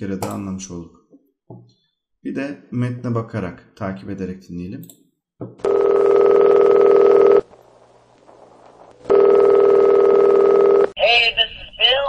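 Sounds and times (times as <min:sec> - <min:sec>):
telephone ringing: 0:05.6 - 0:07.5, 0:09.0 - 0:11.0.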